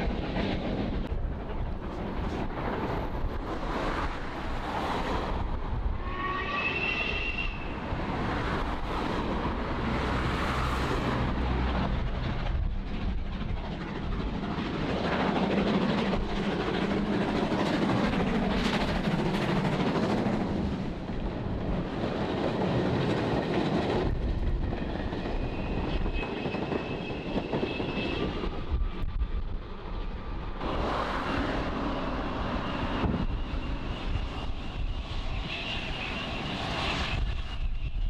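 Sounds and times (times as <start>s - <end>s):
train rumble: 0.0s - 38.0s
train whistle: 6.0s - 7.8s, 35.3s - 38.0s.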